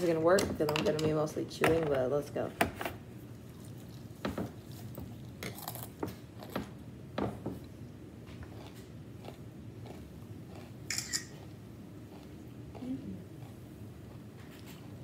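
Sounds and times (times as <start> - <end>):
person chewing cereal: 3.2 - 6.9, 7.6 - 15.0.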